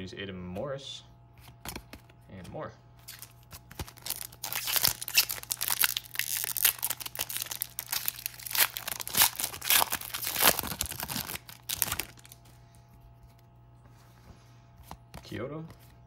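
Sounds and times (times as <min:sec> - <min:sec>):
wrapper being torn and crinkled: 0:03.0 - 0:12.4.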